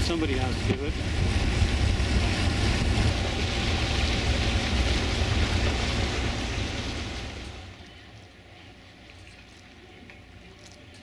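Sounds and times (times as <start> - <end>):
wind buffeting microphone: 0.0 - 7.6.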